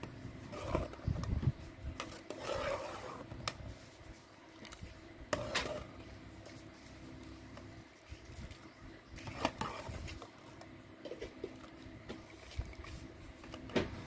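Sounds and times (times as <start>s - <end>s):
ladle scraping metal pot: 0.0s - 3.8s, 5.3s - 6.1s, 9.2s - 10.4s.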